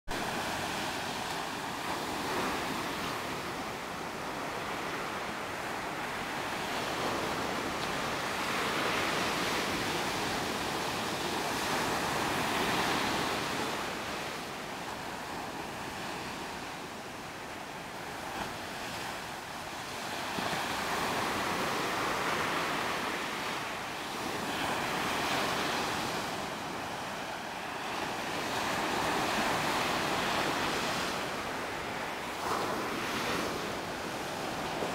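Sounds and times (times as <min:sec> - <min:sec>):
ocean surf breaking: 0:00.1 - 0:34.9.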